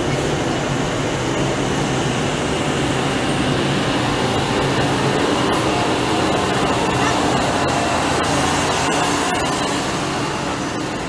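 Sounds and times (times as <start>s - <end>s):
vehicle engines driving past: 0.0s - 11.0s.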